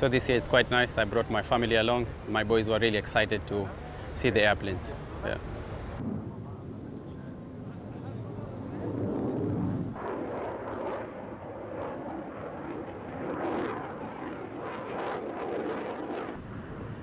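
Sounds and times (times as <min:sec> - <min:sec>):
jet aircraft flying overhead: 0:00.0 - 0:17.0.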